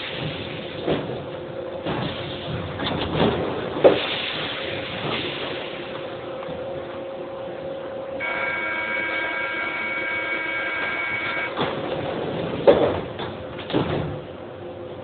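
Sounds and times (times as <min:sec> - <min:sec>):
train hum: 0:00.0 - 0:15.0
door warning buzzer: 0:08.2 - 0:11.6
train doors shutting thud: 0:11.3 - 0:14.3.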